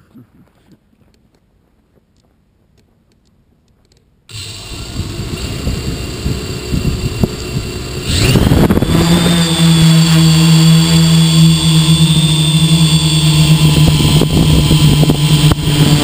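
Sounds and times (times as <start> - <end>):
drone motors and propellers humming: 4.3 - 16.0.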